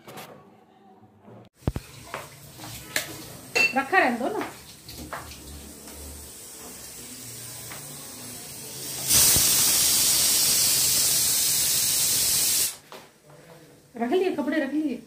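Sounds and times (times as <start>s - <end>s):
pressure cooker hissing steam: 6.2s - 12.8s.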